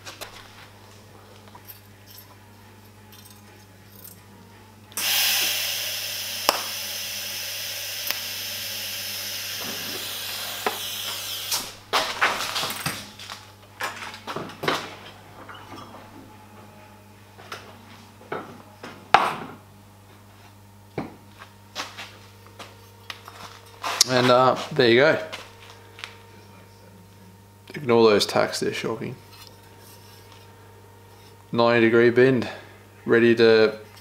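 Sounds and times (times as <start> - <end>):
welding arc hissing: 5.0 - 11.8.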